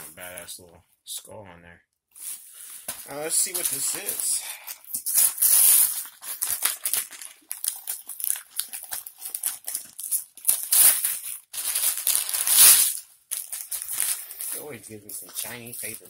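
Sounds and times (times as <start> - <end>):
newspaper crinkling and tearing: 2.2 - 16.0.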